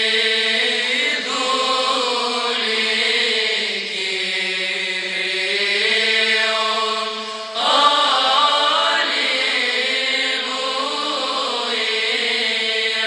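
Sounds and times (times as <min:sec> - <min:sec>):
slow chant in long notes: 0:00.0 - 0:13.0.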